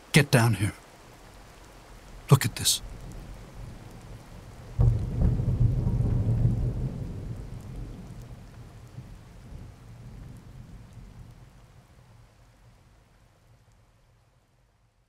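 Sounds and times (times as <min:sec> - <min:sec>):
steady rain: 0:00.0 - 0:15.0
thunder rolling: 0:02.9 - 0:11.3.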